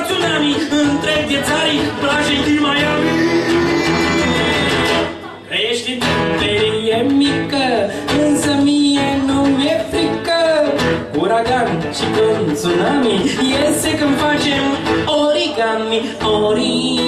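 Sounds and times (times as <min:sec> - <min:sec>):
man singing folk song: 0:00.0 - 0:04.7, 0:05.5 - 0:17.0
strummed acoustic guitar: 0:00.0 - 0:17.0.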